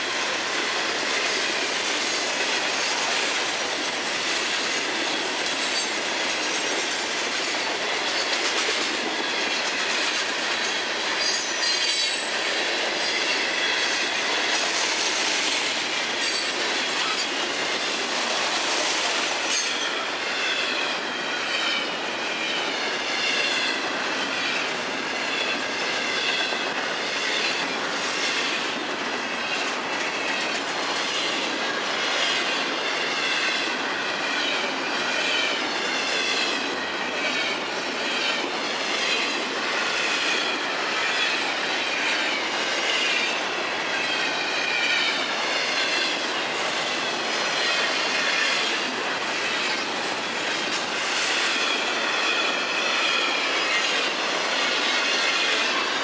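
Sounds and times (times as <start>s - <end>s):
steel wheels rolling on rail: 0.0s - 56.0s
rail joint clicks: 0.1s - 20.0s, 43.8s - 55.8s.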